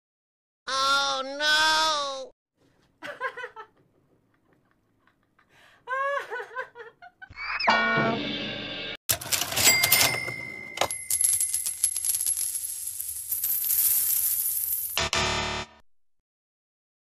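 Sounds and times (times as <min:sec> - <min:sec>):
man laughing mockingly: 0:03.0 - 0:07.5.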